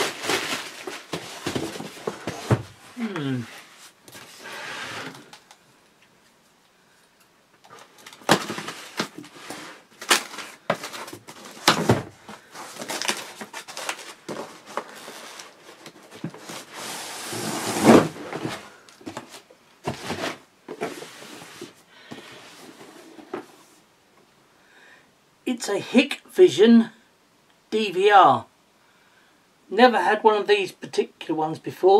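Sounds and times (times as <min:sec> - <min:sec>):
cardboard rustling and scraping: 0:00.0 - 0:05.4, 0:07.7 - 0:23.8
cardboard tearing scrape: 0:08.2 - 0:18.6
packing tape ripping: 0:10.0 - 0:12.0, 0:12.7 - 0:15.6.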